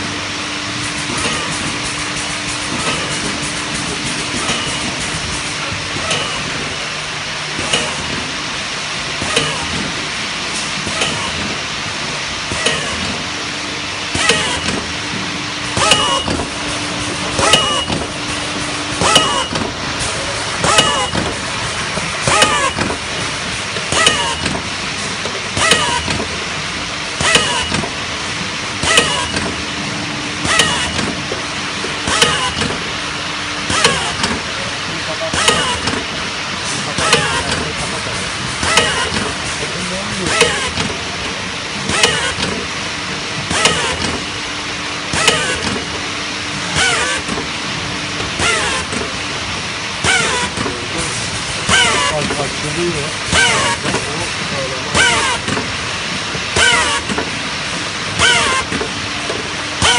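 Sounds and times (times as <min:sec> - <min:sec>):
machine hum and rattle: 0:00.0 - 0:59.9
sharp machine clack: 0:00.8 - 0:06.6, 0:14.1 - 0:14.9, 0:15.6 - 0:24.7, 0:25.6 - 0:26.4, 0:27.2 - 0:27.9, 0:28.8 - 0:29.6, 0:32.0 - 0:32.8, 0:33.7 - 0:34.4, 0:35.1 - 0:36.0, 0:36.7 - 0:41.0, 0:41.8 - 0:42.6, 0:43.5 - 0:44.2.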